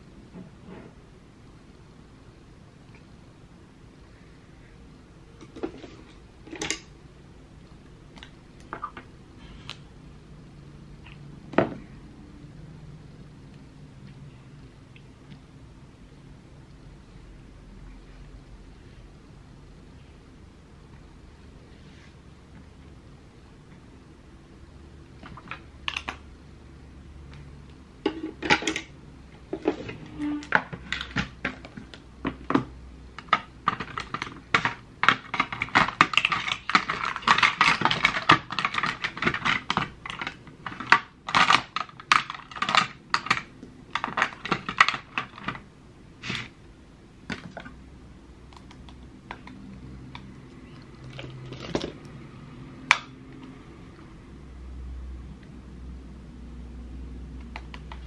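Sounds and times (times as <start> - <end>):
plastic makeup cases clicking: 30.9 - 45.6.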